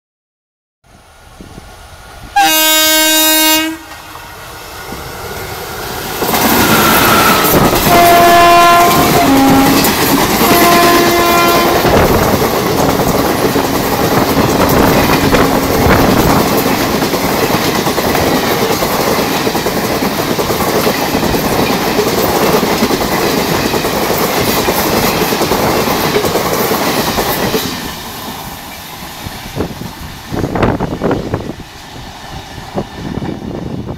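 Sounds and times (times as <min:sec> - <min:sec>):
train passing: 0:00.9 - 0:33.9
train horn blasts: 0:02.4 - 0:04.3, 0:06.5 - 0:12.2.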